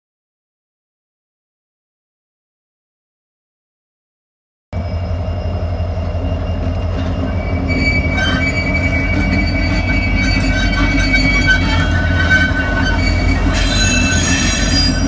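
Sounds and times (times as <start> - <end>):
diesel locomotives rumbling past: 4.8 - 15.0
steel wheel squeal: 4.8 - 15.0.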